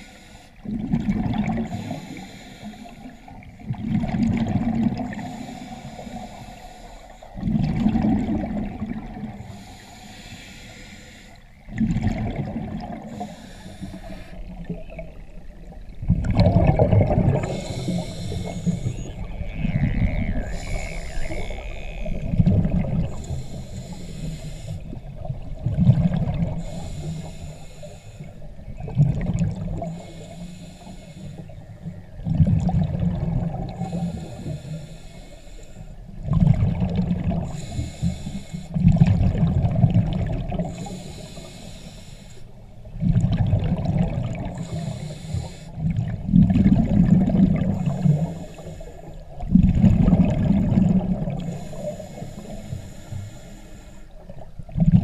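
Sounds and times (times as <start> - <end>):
regulator inhale hiss: 0.0 - 0.7, 1.6 - 3.6, 5.1 - 7.5, 9.2 - 11.6, 13.0 - 14.7, 17.3 - 19.2, 20.4 - 25.2, 26.4 - 28.6, 29.8 - 31.8, 33.6 - 36.1, 37.4 - 38.8, 40.6 - 42.7, 44.4 - 45.9, 47.7 - 49.4, 51.2 - 54.4
exhaled bubbles rushing: 0.6 - 2.0, 3.6 - 5.3, 7.4 - 9.4, 11.7 - 13.3, 14.5 - 23.6, 24.9 - 26.7, 28.7 - 29.9, 32.2 - 34.0, 36.2 - 37.6, 38.8 - 40.9, 42.9 - 44.9, 45.8 - 48.2, 49.4 - 51.5, 54.7 - 55.0.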